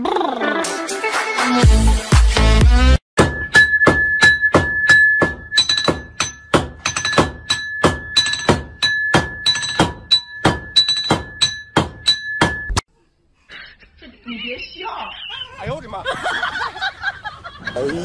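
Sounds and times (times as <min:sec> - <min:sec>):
music with thumping beat: 0:01.2 - 0:12.8.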